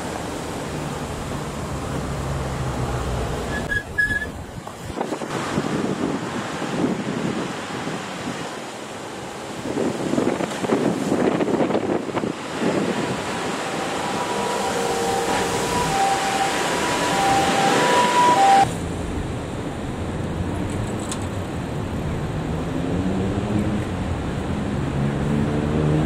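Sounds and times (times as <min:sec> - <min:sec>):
cars and motorcycles passing: 0:00.0 - 0:03.8, 0:04.4 - 0:26.0
traffic rumble: 0:00.0 - 0:26.0
steady electronic tones: 0:12.8 - 0:18.7.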